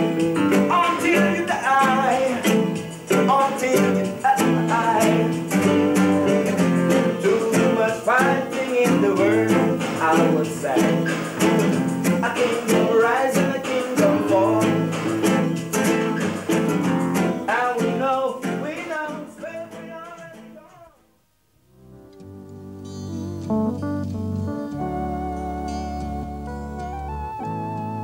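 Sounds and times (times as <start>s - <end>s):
man singing: 0.0s - 16.0s, 17.4s - 21.1s
strummed acoustic guitar: 0.0s - 21.0s.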